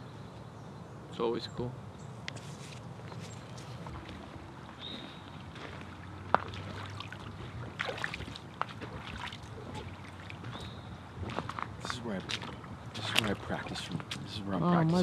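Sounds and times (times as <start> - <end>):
boots splashing through creek: 3.2 - 14.4.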